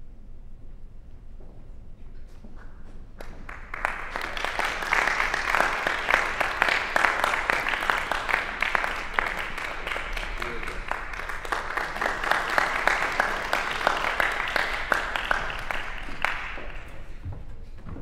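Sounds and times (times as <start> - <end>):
audience applauding: 3.2 - 17.2.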